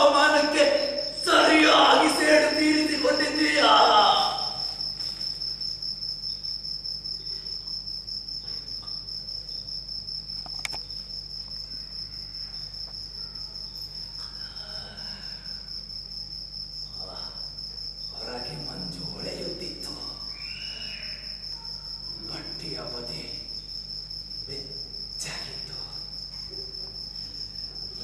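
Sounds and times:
cricket chirping: 0.0 - 28.0
sharp click: 10.4 - 10.9.

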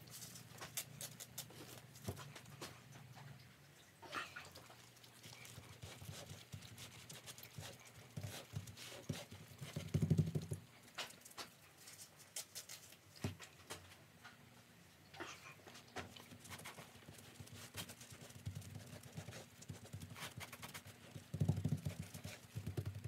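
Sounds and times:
hands tapping and rustling cloth: 16.5 - 23.0.

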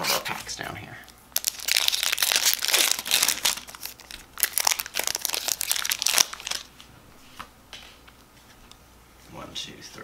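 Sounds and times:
foil wrapper crinkling: 1.4 - 6.7.

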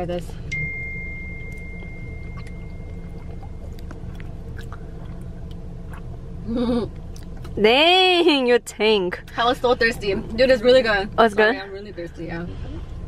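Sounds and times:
low hum inside car: 0.0 - 13.0
swallowing clicks: 2.2 - 6.1
person gulping a drink: 2.3 - 7.4.

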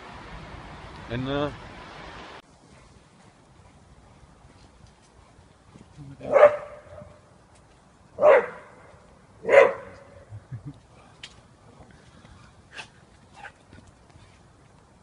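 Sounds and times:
dog barking: 6.2 - 7.2, 8.2 - 10.1.

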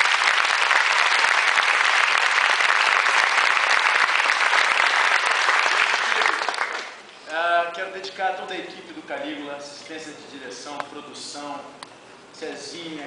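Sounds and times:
audience applauding: 0.0 - 7.0.

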